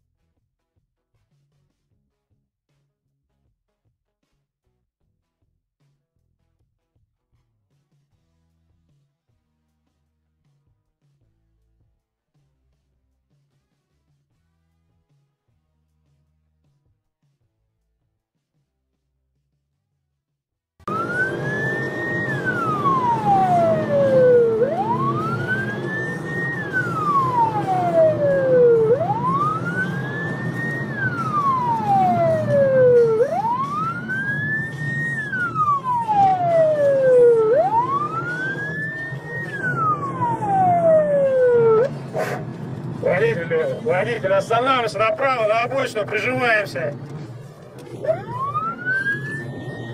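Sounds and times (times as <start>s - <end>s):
police siren wailing: 20.9s - 49.9s
road noise: 20.9s - 49.9s.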